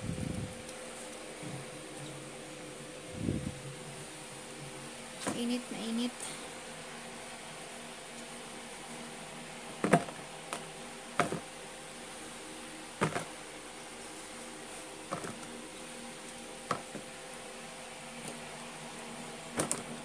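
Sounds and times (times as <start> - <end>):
low steady hum: 0.0 - 20.0
knocks and clatters of containers: 9.8 - 10.2, 11.2 - 11.5, 13.0 - 13.3, 15.1 - 15.5.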